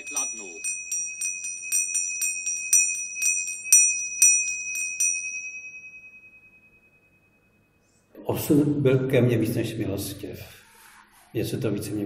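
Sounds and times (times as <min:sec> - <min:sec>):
small metal bell struck: 0:00.0 - 0:07.8.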